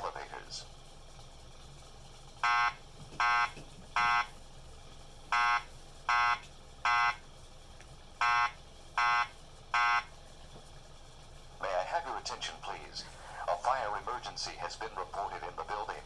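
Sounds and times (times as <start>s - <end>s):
fire alarm beeps: 2.4s - 4.3s, 5.3s - 7.2s, 8.2s - 10.1s.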